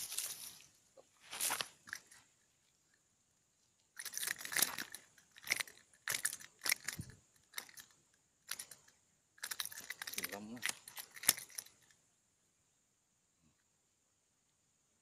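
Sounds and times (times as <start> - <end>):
crunchy rustling near microphone: 0.0 - 3.0.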